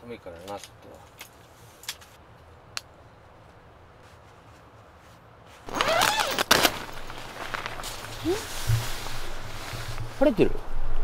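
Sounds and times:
tent fabric rustling: 4.0 - 10.5
zipper pulled open: 5.7 - 9.2.

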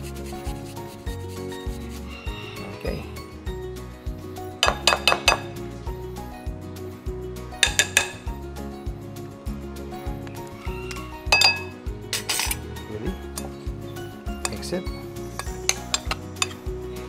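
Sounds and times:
background music with steady beat: 0.0 - 17.0
grater tapping on glass bowl: 4.6 - 5.5, 7.6 - 8.2.

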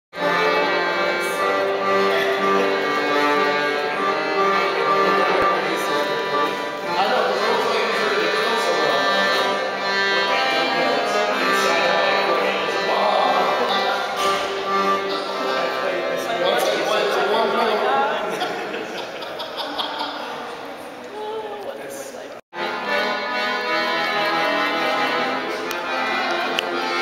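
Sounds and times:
accordion playing held chords: 0.2 - 17.8, 22.5 - 27.0.

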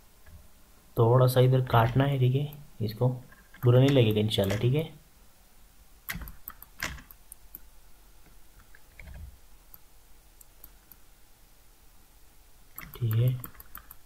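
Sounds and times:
mouse and keyboard clicks: 12.8 - 14.0.

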